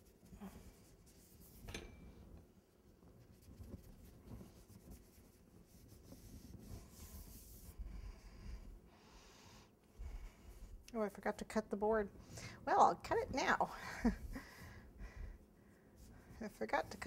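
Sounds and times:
hands rubbing fondant: 0:00.0 - 0:01.7, 0:02.9 - 0:08.8, 0:13.1 - 0:17.0.

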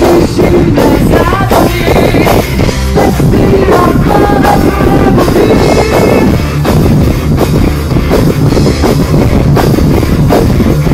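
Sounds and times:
woman singing: 0:00.0 - 0:06.4
drum kit: 0:00.0 - 0:10.9
electric guitars: 0:00.0 - 0:10.9.

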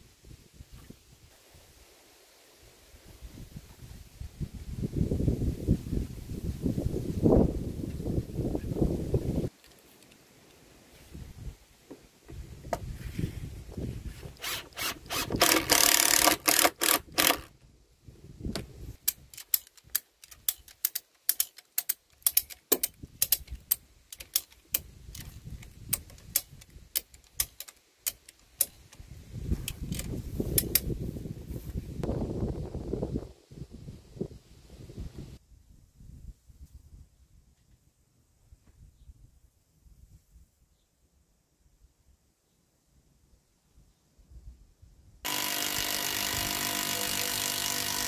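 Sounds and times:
ratchet strap clicking: 0:14.4 - 0:17.5, 0:19.0 - 0:29.0, 0:29.7 - 0:30.9, 0:45.3 - 0:48.0.

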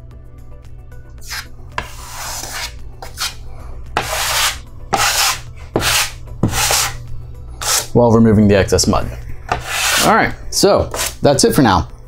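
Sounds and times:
drywall knife scraping wall: 0:01.2 - 0:03.4, 0:04.0 - 0:07.0, 0:07.6 - 0:07.9, 0:09.5 - 0:10.2, 0:10.8 - 0:11.2.

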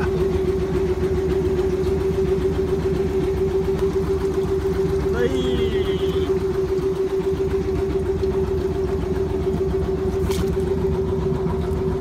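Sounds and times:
engine running steadily: 0:00.0 - 0:12.0.

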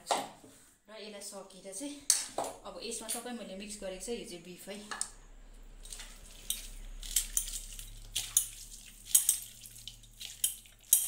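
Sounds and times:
wet squishing of kneaded meat: 0:05.8 - 0:11.0.

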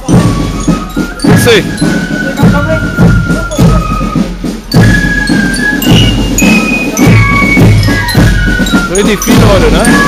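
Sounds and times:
marching band playing: 0:00.0 - 0:10.0
regular drum beat: 0:00.0 - 0:10.0
high bell-like notes: 0:04.7 - 0:10.0.

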